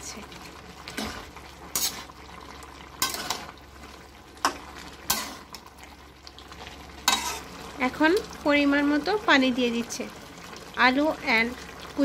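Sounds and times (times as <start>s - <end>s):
metal spatula scraping a wok: 1.0s - 2.2s, 3.0s - 3.5s, 5.1s - 5.6s, 7.0s - 7.5s.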